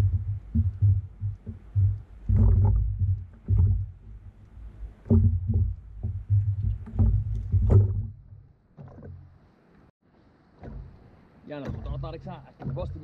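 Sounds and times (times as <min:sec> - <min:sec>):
thumps on a kayak hull: 0:00.0 - 0:09.3, 0:10.6 - 0:13.0.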